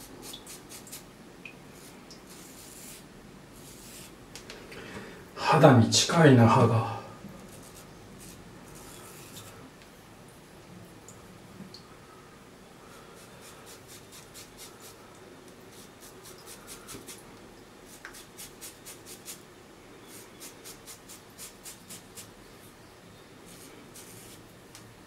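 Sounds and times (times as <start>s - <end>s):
razor scraping stubble: 20.0s - 22.3s, 23.5s - 24.4s.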